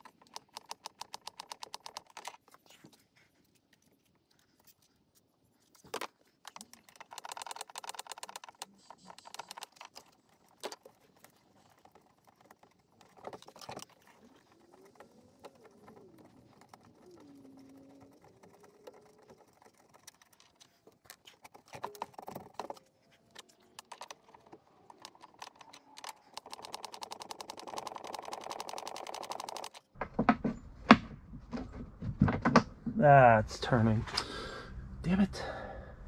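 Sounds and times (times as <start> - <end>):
ratchet clicks: 0.0 - 2.3, 6.5 - 10.9, 23.8 - 29.8.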